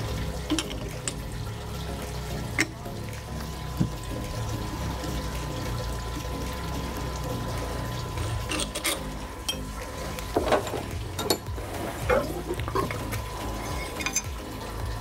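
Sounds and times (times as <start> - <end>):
low hum: 0.0 - 15.0
metal tools clinking: 8.5 - 9.7, 13.6 - 14.3.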